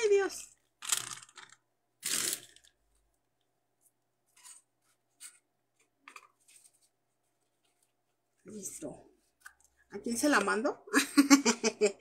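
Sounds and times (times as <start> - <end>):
plastic bag crinkling: 0.8 - 2.9.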